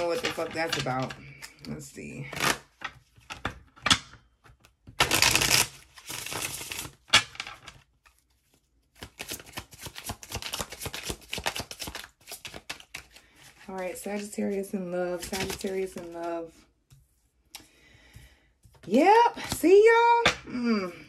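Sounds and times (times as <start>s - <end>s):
cards shuffling: 2.3s - 16.6s.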